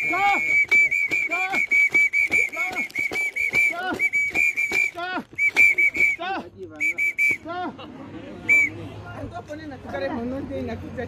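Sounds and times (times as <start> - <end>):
whistle short toots: 0.0 - 7.5, 8.5 - 8.8.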